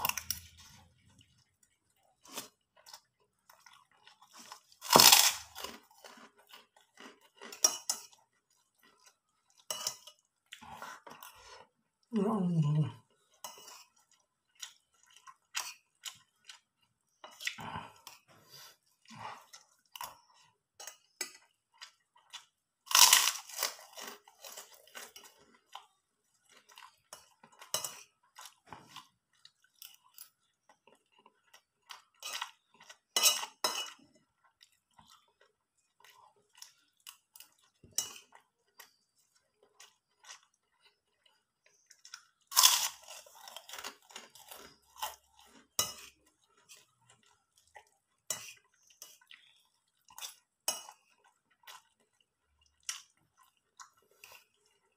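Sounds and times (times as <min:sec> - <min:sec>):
chewing: 0:00.0 - 0:12.1, 0:12.8 - 0:54.9
crackers crunching: 0:04.0 - 0:07.8, 0:22.9 - 0:25.9, 0:42.0 - 0:45.8.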